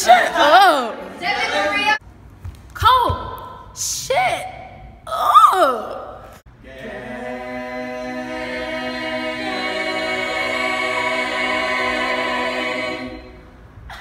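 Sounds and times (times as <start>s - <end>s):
group singing a cappella: 0.0s - 2.0s, 6.5s - 13.6s.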